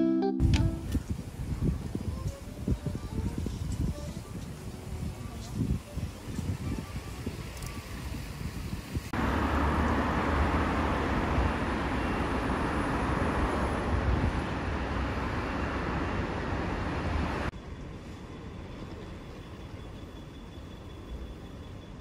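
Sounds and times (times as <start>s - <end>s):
quiet outdoor background: 0.0s - 22.0s
road traffic noise: 0.4s - 18.7s.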